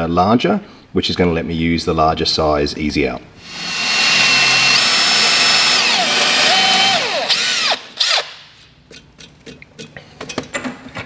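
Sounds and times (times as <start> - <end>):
cordless drill drilling into steel: 3.4 - 8.4.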